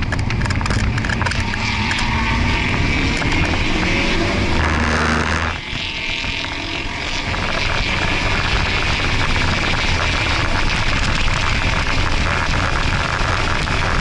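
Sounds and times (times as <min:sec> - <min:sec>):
car engine under load: 0:00.0 - 0:14.0
road and wind noise: 0:00.0 - 0:14.0.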